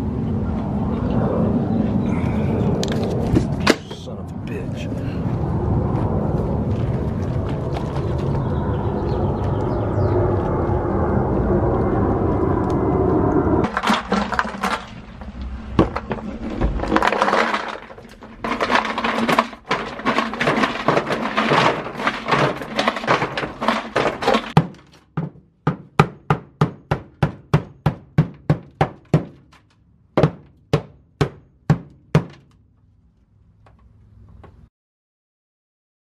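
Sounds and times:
dry ice pellets clattering on steel: 13.6s - 25.0s
sharp knocks on frozen mat: 24.0s - 29.4s, 30.2s - 32.5s.

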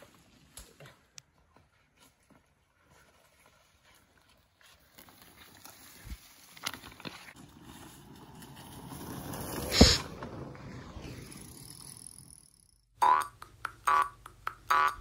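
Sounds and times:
bike tyres swishing through grass: 2.8s - 11.8s.

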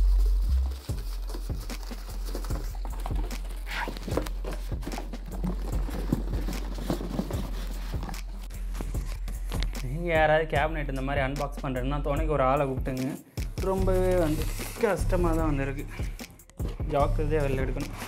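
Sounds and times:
cardboard and packing scraping: 0.4s - 9.1s.

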